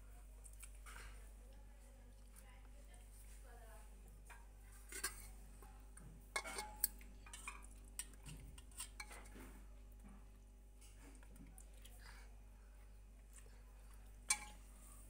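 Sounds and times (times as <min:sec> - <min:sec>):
metal spoon clinking on pot: 0:04.3 - 0:05.3, 0:06.4 - 0:09.3, 0:14.3 - 0:14.6.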